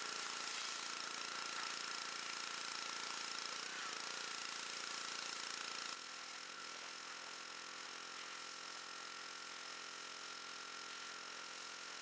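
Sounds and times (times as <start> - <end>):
high-pressure water spray hiss: 0.0 - 5.9
pressure washer engine running: 0.0 - 12.0.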